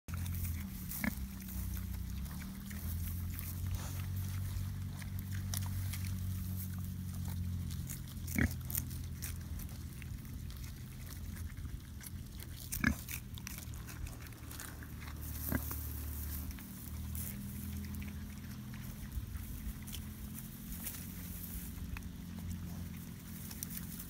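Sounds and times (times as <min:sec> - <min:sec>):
pigs chewing and rooting: 0:00.1 - 0:24.0
small crunching clicks: 0:00.1 - 0:24.0
steady low hum: 0:00.1 - 0:24.0
pig grunts: 0:00.2 - 0:20.3.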